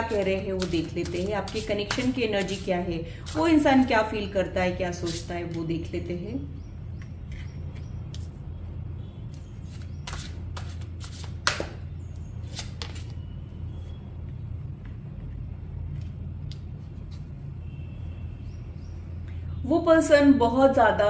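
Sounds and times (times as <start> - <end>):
steady low hum: 0.0 - 21.0
cards flicking and snapping: 9.7 - 11.8, 12.4 - 13.1.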